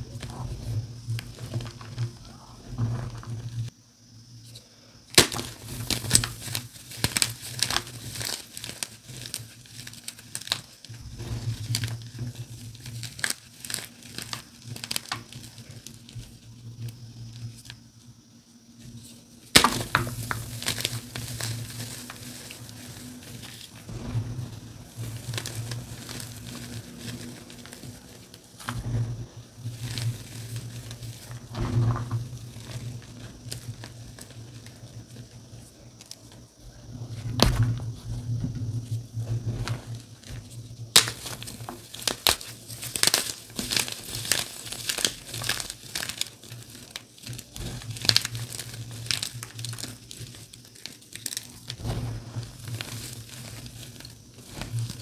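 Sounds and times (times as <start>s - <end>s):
chalk crunching and crackling: 5.2s - 17.8s, 18.8s - 36.5s, 39.5s - 55.0s.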